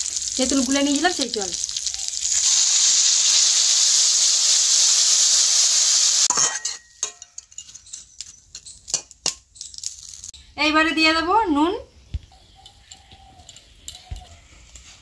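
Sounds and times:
loud sizzling in oil: 0:00.0 - 0:10.3
metal spatula scraping wok: 0:06.0 - 0:09.1.

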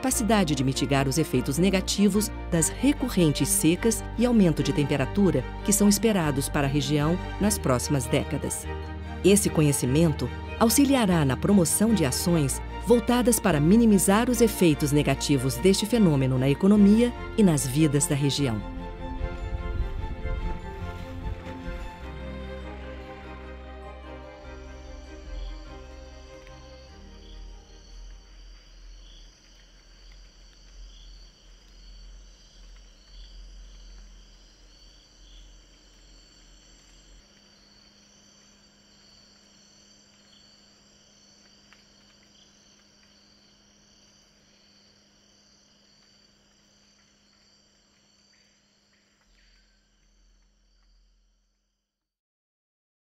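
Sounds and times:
background music with held tones: 0:00.0 - 0:29.0
low rumble: 0:00.2 - 0:29.0
insects chirring: 0:24.3 - 0:51.6.

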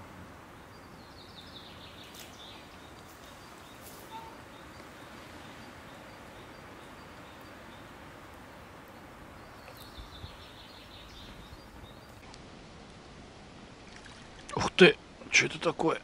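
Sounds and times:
distant bird calls: 0:00.0 - 0:12.3
faint steady hiss: 0:00.0 - 0:16.0.

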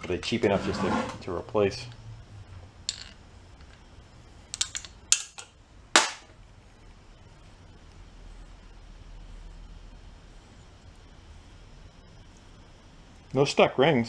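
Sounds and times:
metallic clicks and clinks: 0:04.5 - 0:05.5.

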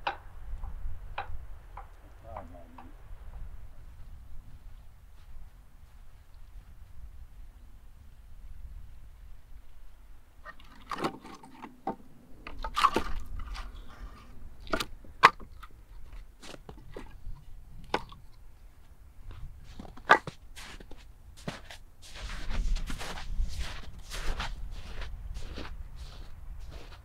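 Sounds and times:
footsteps crunching in snow: 0:03.9 - 0:07.5, 0:18.8 - 0:27.0
firewood logs knocking together: 0:10.4 - 0:13.9, 0:14.6 - 0:17.2, 0:17.8 - 0:18.3, 0:19.7 - 0:20.4.

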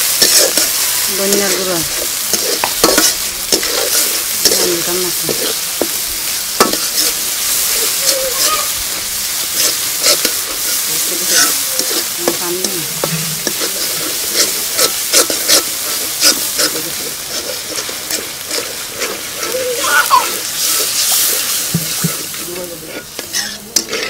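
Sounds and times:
onions sizzling in hot oil: 0:00.0 - 0:24.0
metal spatula scraping pan: 0:00.1 - 0:05.9, 0:06.6 - 0:24.0.

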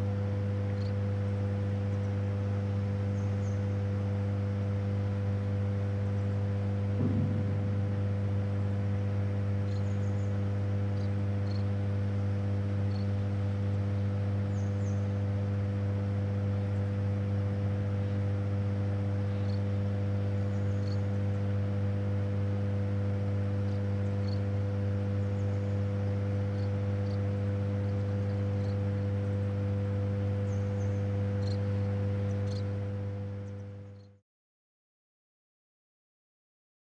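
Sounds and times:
deep electrical hum: 0:00.0 - 0:34.2.

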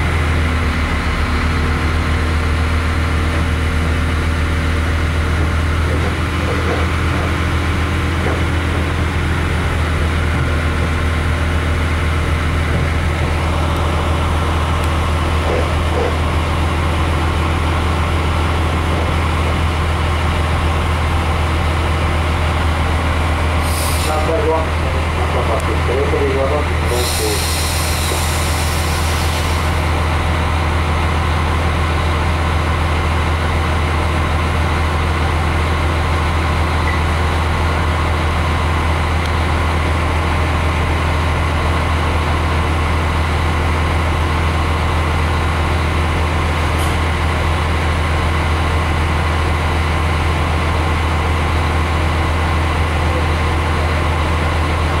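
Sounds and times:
train diesel engine humming: 0:00.0 - 0:55.0.

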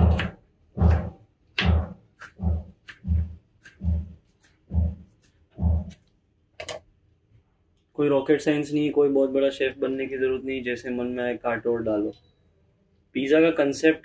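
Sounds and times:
knife chopping on cutting board: 0:00.0 - 0:06.0.

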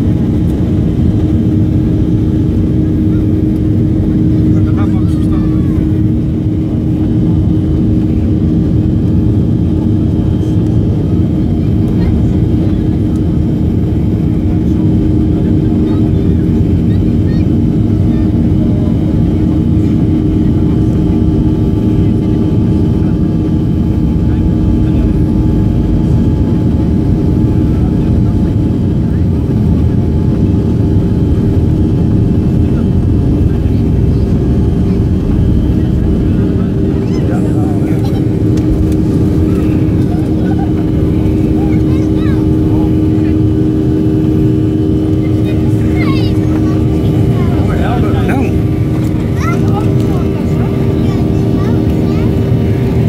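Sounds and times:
jet engine cabin rumble: 0:00.0 - 0:53.0.

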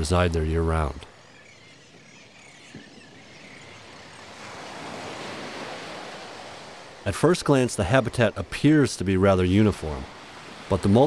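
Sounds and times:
seabird flock calling: 0:00.0 - 0:06.8
surf washing onto beach: 0:03.7 - 0:11.0.

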